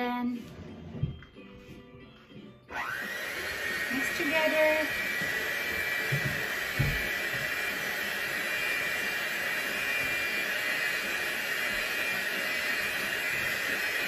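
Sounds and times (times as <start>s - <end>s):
electric hand mixer running: 2.7s - 14.0s.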